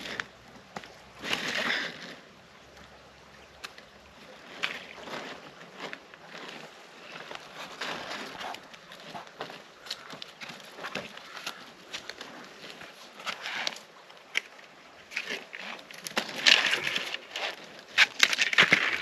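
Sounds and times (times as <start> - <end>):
scraping rustle: 4.3 - 19.0.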